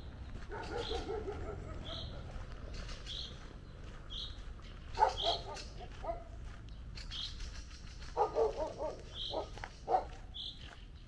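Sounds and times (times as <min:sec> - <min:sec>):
dog barking: 0:00.4 - 0:02.2, 0:04.9 - 0:06.4, 0:08.2 - 0:10.3
bird calling: 0:04.1 - 0:05.8, 0:07.0 - 0:10.8.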